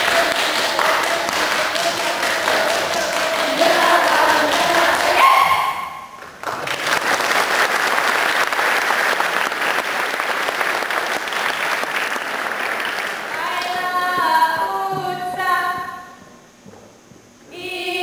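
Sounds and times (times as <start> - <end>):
audience applause: 0.0 - 5.3, 6.2 - 13.8
group singing in unison: 0.0 - 5.8.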